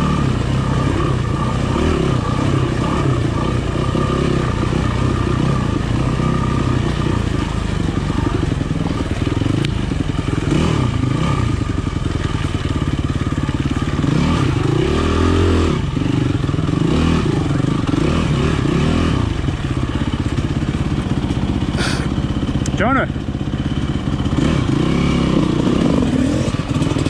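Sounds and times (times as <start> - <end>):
motorcycle engine revving: 0.0 - 27.0.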